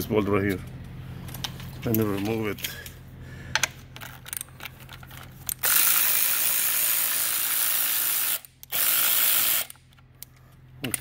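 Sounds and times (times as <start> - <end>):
power ratchet spinning: 4.0 - 9.8.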